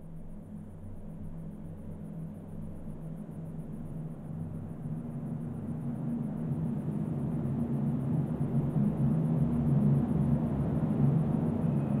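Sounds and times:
low ambient drone: 0:08.2 - 0:12.0.

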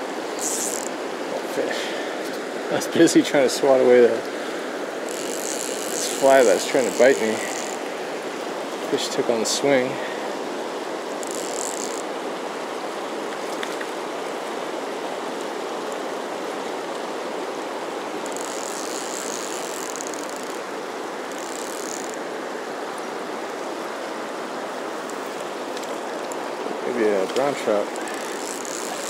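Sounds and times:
fast river water rushing: 0:00.0 - 0:29.0
high-pitched buzzing bursts: 0:00.4 - 0:00.9, 0:05.1 - 0:07.9, 0:27.9 - 0:29.0.

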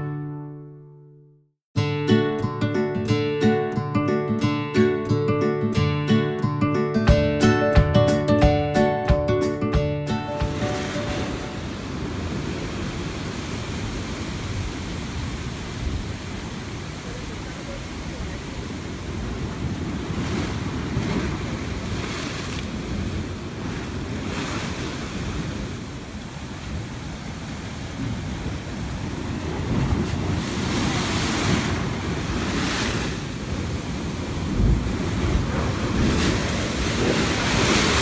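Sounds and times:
wave spraying: 0:10.3 - 0:38.0
wind buffeting microphone: 0:10.8 - 0:38.0
surf rushing into rock hole: 0:27.4 - 0:38.0
water splashing over rocks: 0:30.2 - 0:38.0.

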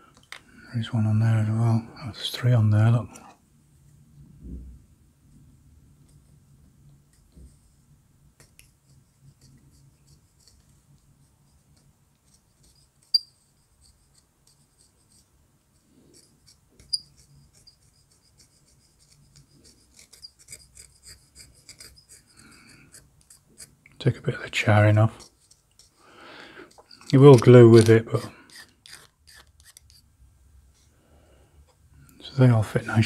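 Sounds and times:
needle file rasping on wood: 0:13.8 - 0:23.8, 0:28.1 - 0:30.0.

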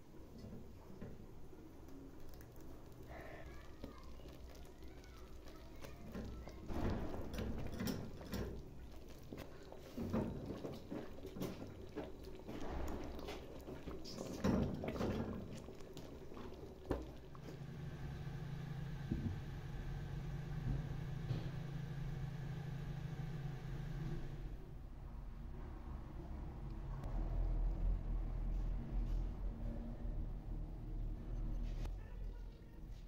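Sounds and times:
spoon stirring thick bubbling mass: 0:00.9 - 0:17.6.

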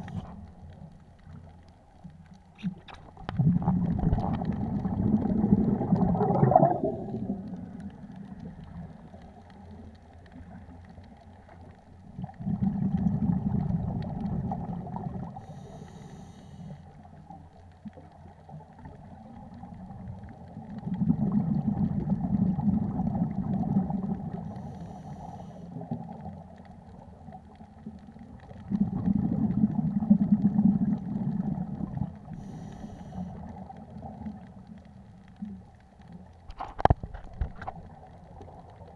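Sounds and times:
bubbling rush of exhaled air: 0:02.8 - 0:09.0, 0:12.2 - 0:16.2, 0:20.8 - 0:25.0, 0:28.6 - 0:34.2
faint hiss: 0:13.6 - 0:20.6, 0:23.2 - 0:28.0, 0:30.8 - 0:36.4
scuba regulator breathing underwater: 0:15.4 - 0:16.8, 0:24.5 - 0:25.9, 0:32.3 - 0:33.6.

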